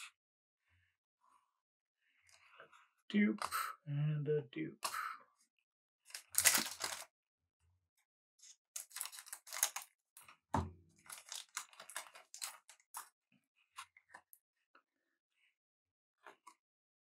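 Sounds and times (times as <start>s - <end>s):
card wrapper crinkling and tearing: 6.1s - 7.1s, 8.8s - 10.0s, 11.0s - 13.1s.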